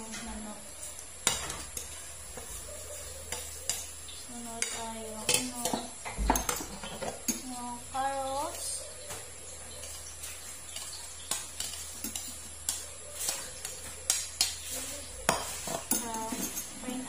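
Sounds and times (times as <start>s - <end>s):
spoon clinking on bowl and pot: 3.3s - 4.0s, 4.6s - 7.5s, 10.7s - 16.9s.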